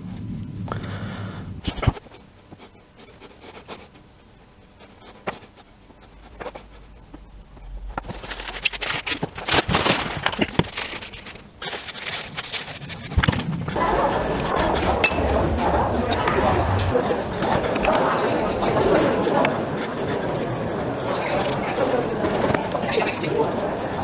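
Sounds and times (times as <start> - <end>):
paintbrush scratching on steel: 2.0 - 7.8.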